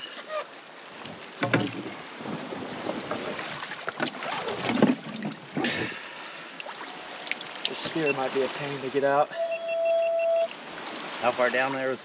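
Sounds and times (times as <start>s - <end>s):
water splashing against boat: 0.0s - 12.0s
knocks and thumps: 1.4s - 2.0s.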